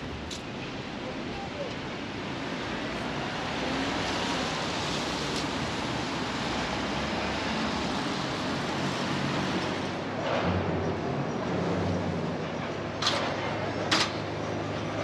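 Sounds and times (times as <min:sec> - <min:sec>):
traffic hissing on wet streets: 0:00.0 - 0:10.1.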